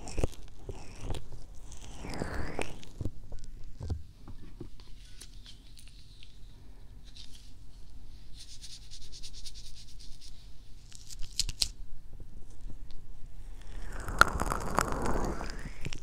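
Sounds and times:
sharp crackles: 13.4 - 16.0.

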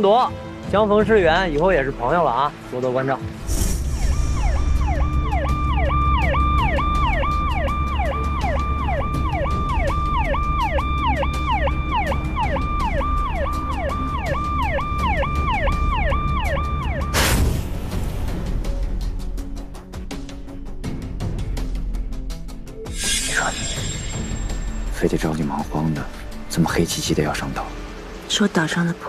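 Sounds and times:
engine and road rumble: 1.3 - 22.9, 24.0 - 29.0
police siren wailing: 3.9 - 17.3
loud hit: 17.1 - 18.9.

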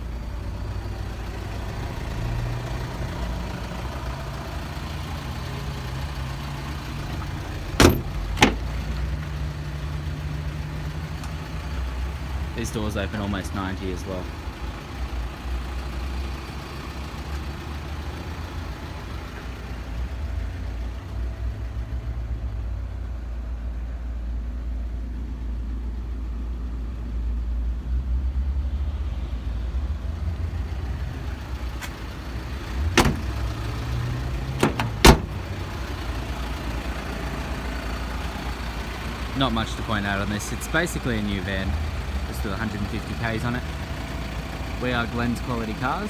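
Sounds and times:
van door latching shut: 7.8 - 8.7, 32.9 - 33.3, 34.6 - 35.4.

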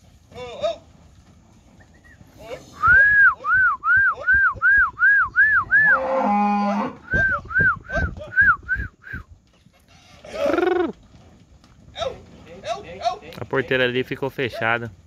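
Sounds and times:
high whistle-like call: 2.8 - 6.0, 7.1 - 9.2
calf mooing: 5.9 - 7.0.

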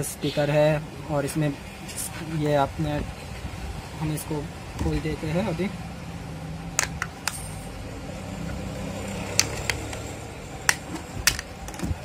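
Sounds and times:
plastic cover clicking: 10.7 - 11.9.

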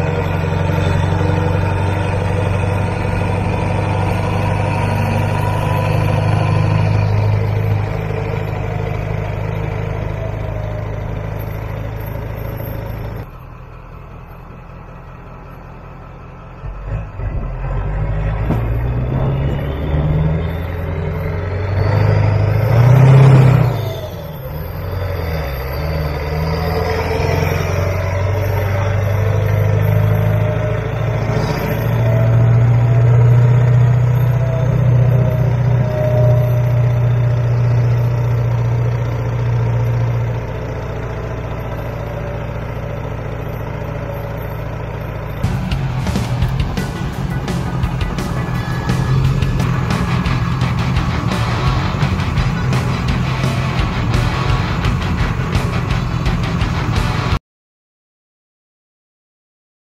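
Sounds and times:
diesel pickup engine under load: 0.0 - 57.4
road and wind noise: 0.0 - 57.4
oncoming vehicle passing: 14.9 - 38.8, 45.4 - 57.4.

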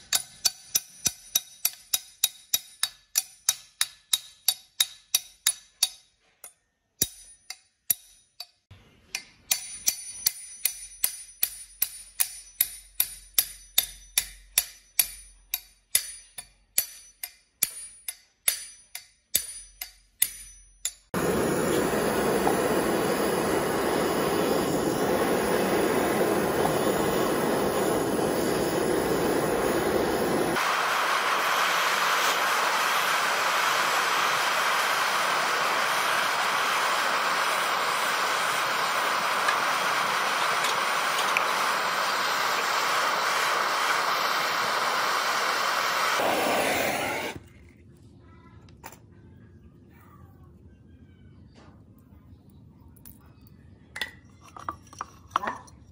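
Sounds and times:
gas torch burning: 21.1 - 47.6.

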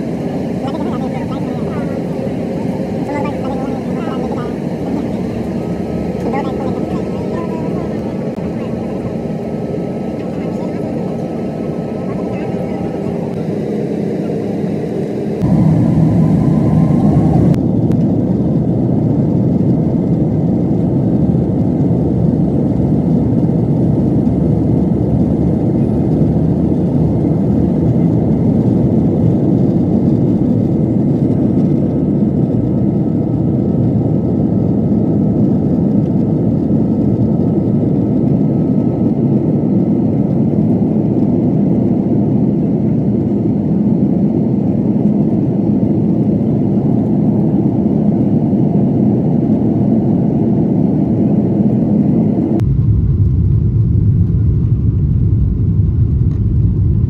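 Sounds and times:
jet engine cabin rumble: 0.0 - 57.0
brief rising whine: 15.4 - 17.6.

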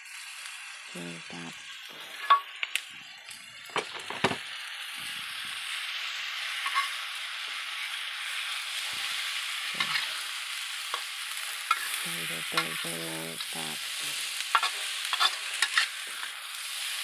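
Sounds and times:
food sizzling in a frying pan: 0.0 - 17.0
metal spatula scraping a pan: 6.5 - 7.0, 9.7 - 10.2, 11.7 - 16.4.

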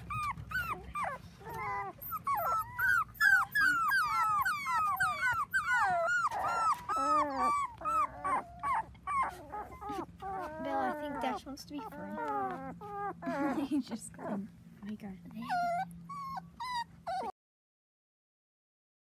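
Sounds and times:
puppy lower cries: 0.0 - 14.5, 15.4 - 17.4
puppies whining and squeaking: 0.0 - 14.6, 15.3 - 17.4.

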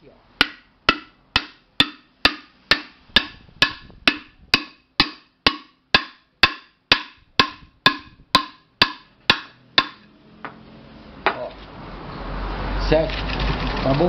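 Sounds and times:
wooden block knocking metal pot: 0.4 - 10.1.

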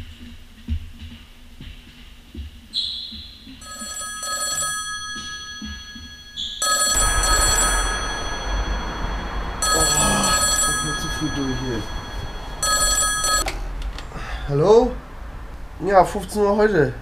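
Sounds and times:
desk telephone ringing: 3.6 - 13.5.

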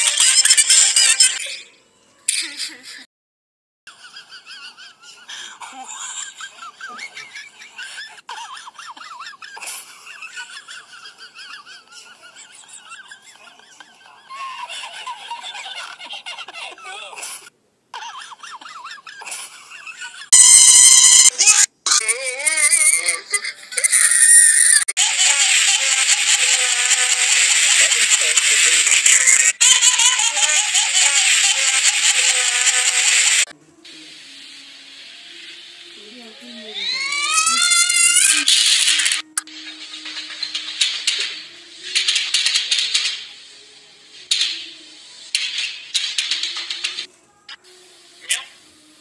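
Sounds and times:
music with warbling voice: 20.4 - 43.6, 44.2 - 49.0
steady hiss: 30.4 - 36.8.

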